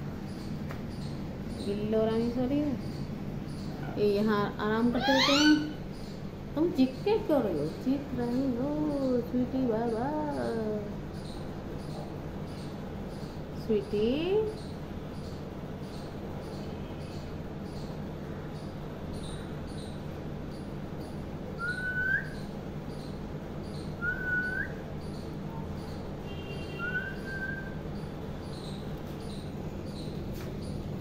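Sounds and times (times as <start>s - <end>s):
parakeet short rising whistles: 21.6s - 22.4s.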